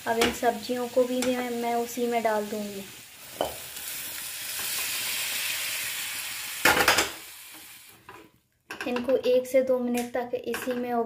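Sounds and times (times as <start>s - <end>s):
liquid sizzling in hot pan: 0.0s - 8.2s.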